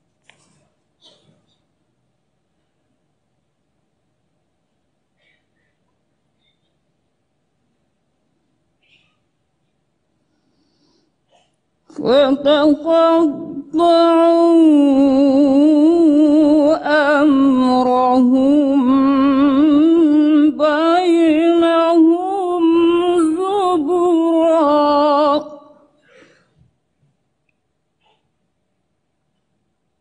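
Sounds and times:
woman reciting melodically: 11.8 - 26.0.

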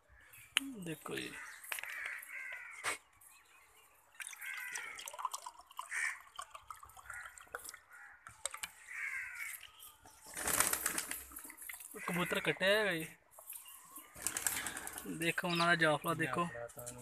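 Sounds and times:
bird chirps: 8.6 - 10.5, 13.3 - 16.3.

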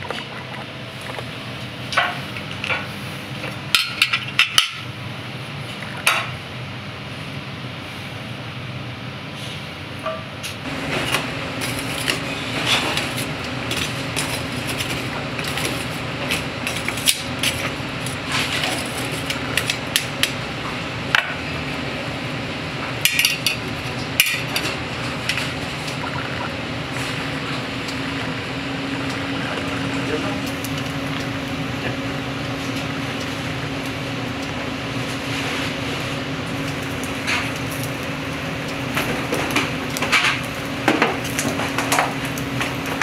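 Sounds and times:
background hum: 10.4 - 43.0.

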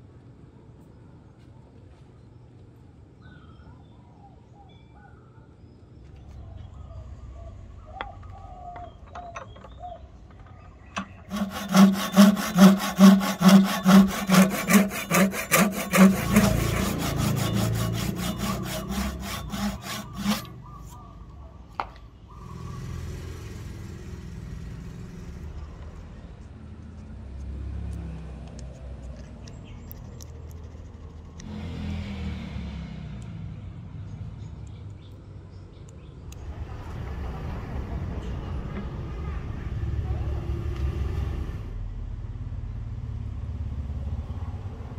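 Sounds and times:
hand saw cutting wood: 11.2 - 20.6.

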